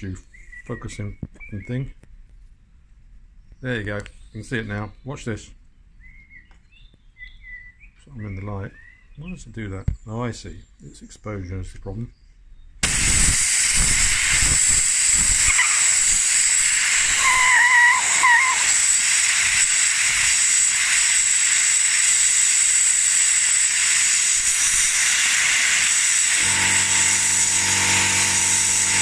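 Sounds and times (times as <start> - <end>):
compressed air hissing: 12.8 - 29.0
wavering whistle: 15.4 - 24.0.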